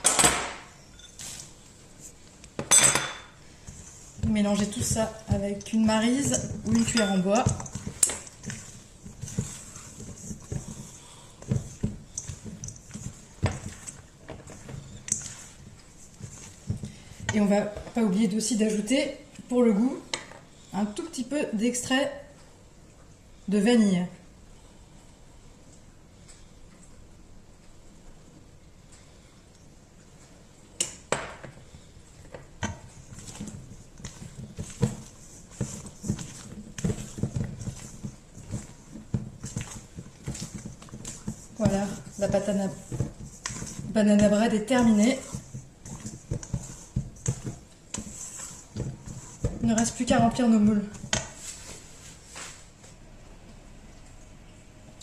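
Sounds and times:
spatula knocking and scraping bowl: 2.6s - 19.0s, 32.2s - 51.8s.

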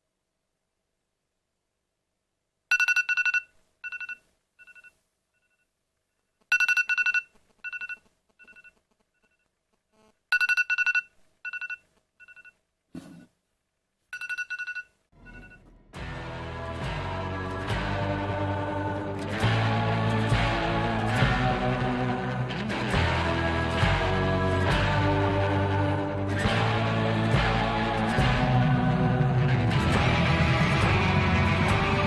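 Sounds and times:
phone alarm beeps: 2.7s - 5.0s, 6.5s - 8.8s, 10.3s - 12.6s, 14.2s - 15.7s.

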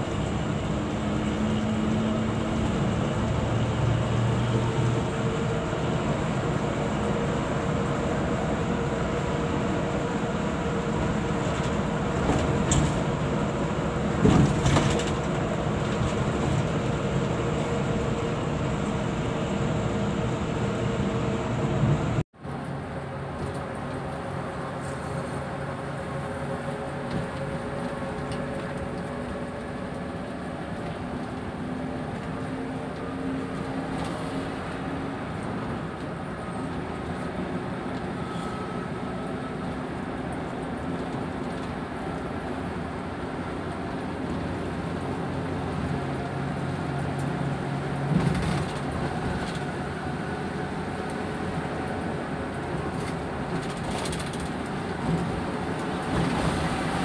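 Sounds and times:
bus engine drone and road noise: 0.0s - 57.0s.

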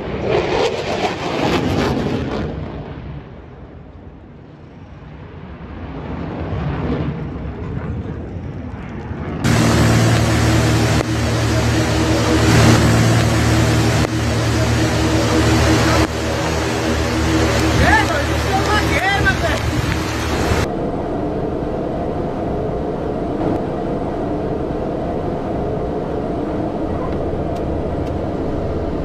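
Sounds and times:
jet aircraft overhead: 5.6s - 29.0s
propeller plane engine droning: 7.2s - 29.0s.

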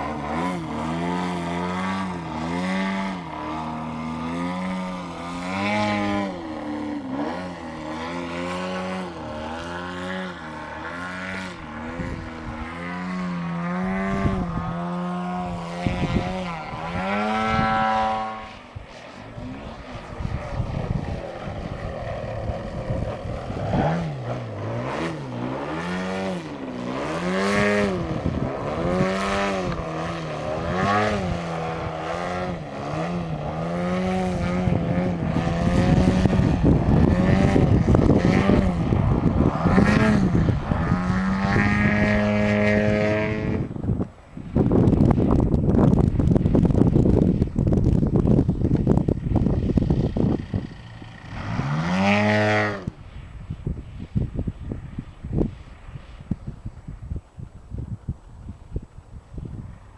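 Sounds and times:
model plane engine: 0.0s - 59.9s.

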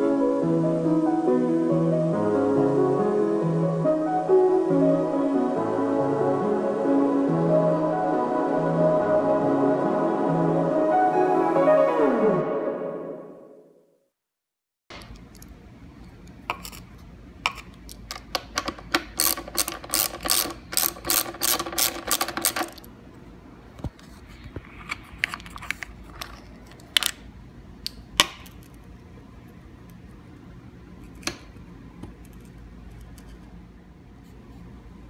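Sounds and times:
hand ratchet clicking: 19.2s - 22.8s.

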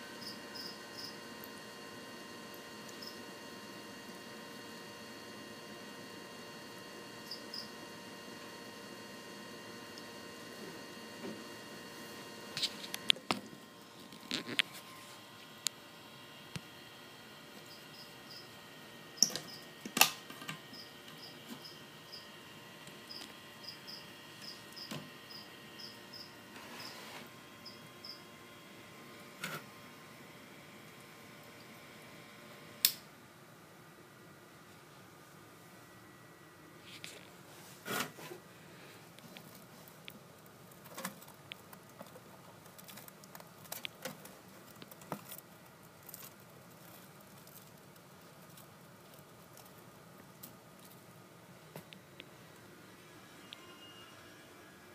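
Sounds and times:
cricket chirping: 0.2s - 1.2s, 3.0s - 3.2s, 7.2s - 7.7s, 17.6s - 18.6s, 20.7s - 22.3s, 23.1s - 26.9s, 27.6s - 28.2s.

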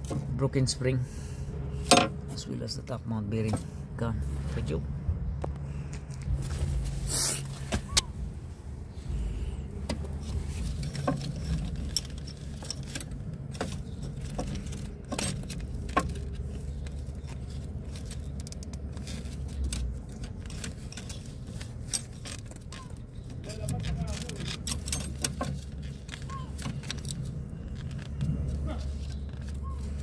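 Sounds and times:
low rumble: 3.7s - 17.8s
metal parts clinking: 10.2s - 30.0s.

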